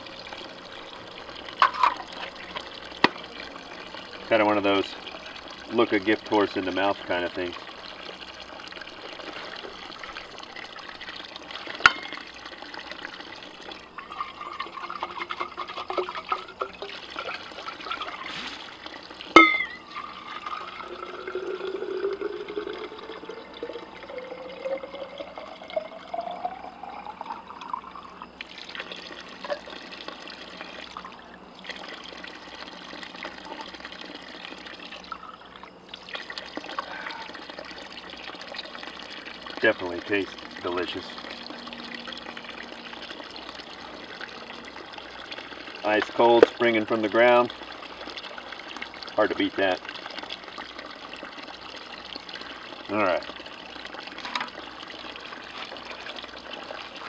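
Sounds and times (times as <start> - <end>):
water pouring into bottle: 0.0 - 57.0
bottle knocking: 19.4 - 19.9.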